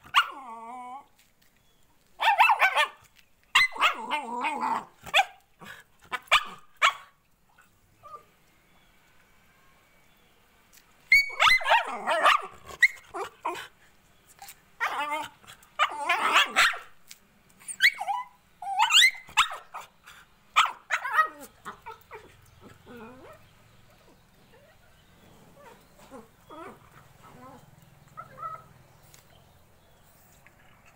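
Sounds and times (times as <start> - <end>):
puppy yelping and whining: 0.0 - 1.1, 2.2 - 5.4, 11.1 - 13.6, 14.4 - 16.9, 17.6 - 19.9, 20.6 - 28.8.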